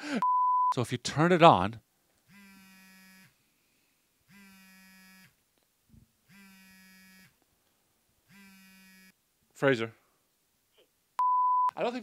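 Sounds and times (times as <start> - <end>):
phone vibration buzzing: 2.3 - 3.4, 4.3 - 5.4, 6.3 - 7.4, 8.3 - 9.2.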